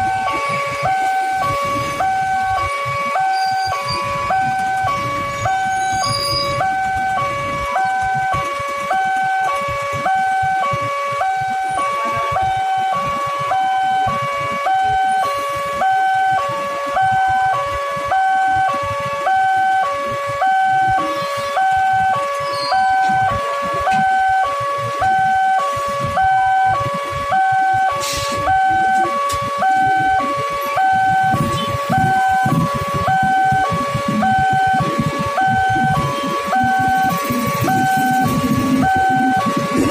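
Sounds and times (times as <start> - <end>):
electric train rumbling past: 0.0 - 9.5, 30.6 - 39.9
level crossing two-tone alarm: 0.0 - 39.9.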